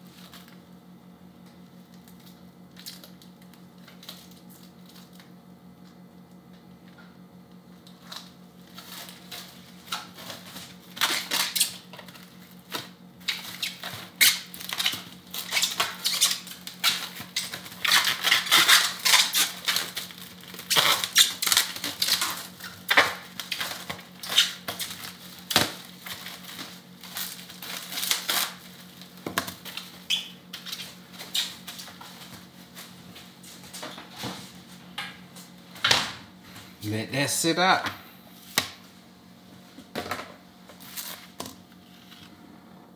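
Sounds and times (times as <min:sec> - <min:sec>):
plastic cling wrap crinkling: 0:01.6 - 0:05.3, 0:07.8 - 0:33.8.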